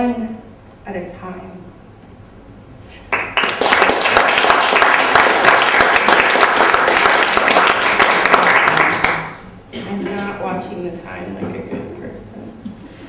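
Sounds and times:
audience applauding: 3.1 - 9.4.

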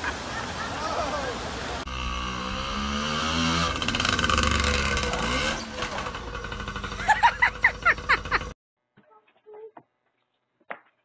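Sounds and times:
mini bike engine revving: 1.8 - 8.6.

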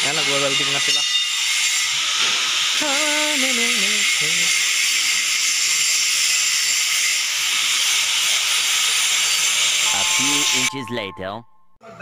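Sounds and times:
welding arc hissing: 1.6 - 9.9.

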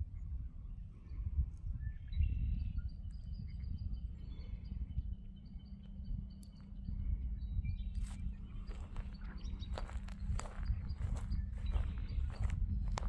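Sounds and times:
low rumble: 0.0 - 13.0
footsteps outdoors: 7.9 - 13.0.

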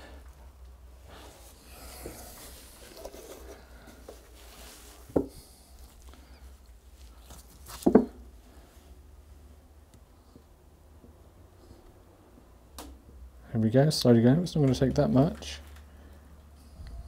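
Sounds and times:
faint handling noise: 0.6 - 8.3.

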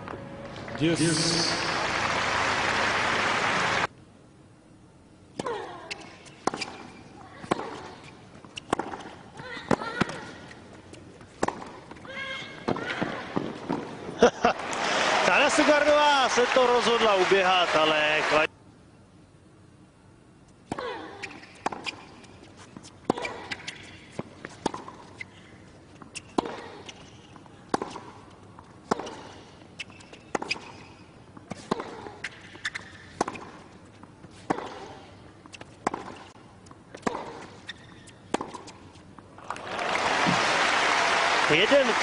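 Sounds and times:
tennis ball hit by rackets: 7.4 - 10.3, 11.4 - 11.8, 26.1 - 26.7, 27.7 - 28.2, 28.8 - 33.7, 34.4 - 36.4, 37.0 - 38.8.

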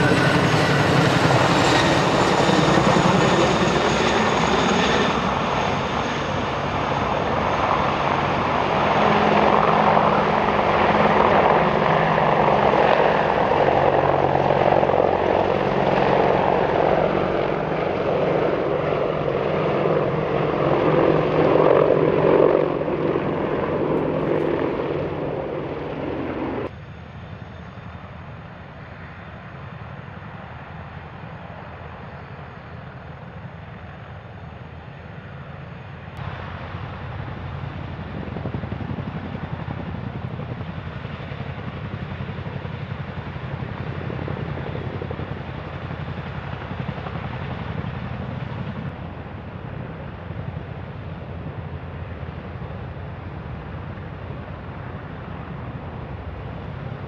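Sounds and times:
helicopter idling on ground: 0.0 - 57.0
helicopters flying close by: 0.0 - 57.0.

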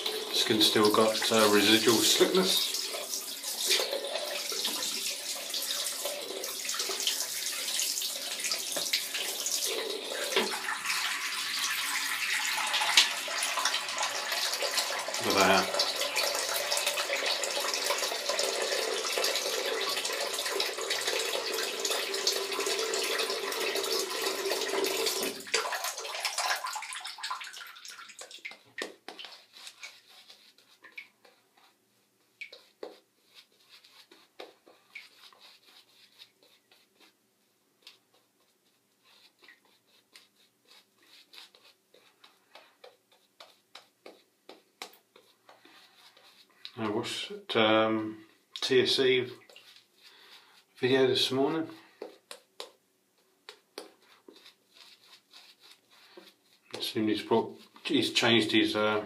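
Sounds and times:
tap running water into sink: 0.0 - 29.8.

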